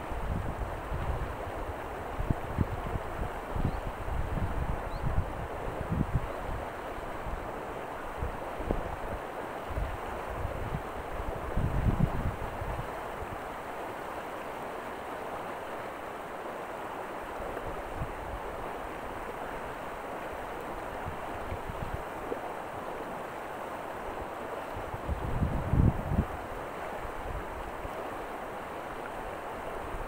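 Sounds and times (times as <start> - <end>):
low wind rumble on microphone: 0.0 - 7.5, 8.1 - 13.4, 20.8 - 22.2, 24.7 - 28.0
river water rushing: 0.0 - 30.0.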